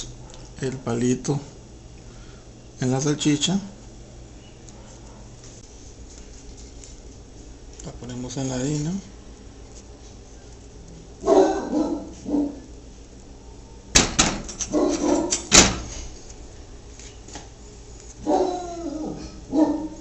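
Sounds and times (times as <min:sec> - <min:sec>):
dog barking and whining: 0:11.2 - 0:12.7, 0:14.7 - 0:15.5, 0:18.2 - 0:20.0.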